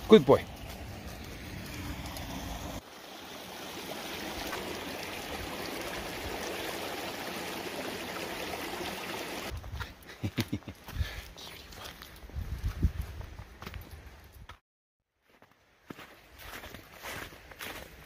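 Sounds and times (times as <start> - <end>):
low rumbling: 0.0 - 2.8
creek running over rocks: 0.0 - 9.6.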